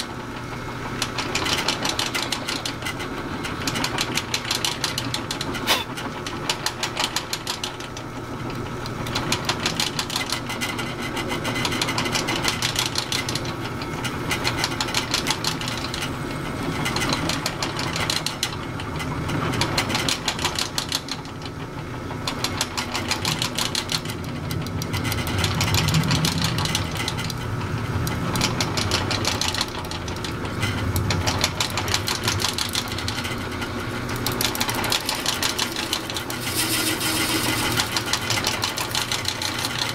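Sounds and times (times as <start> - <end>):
drill press boring into plastic: 28.1 - 39.9.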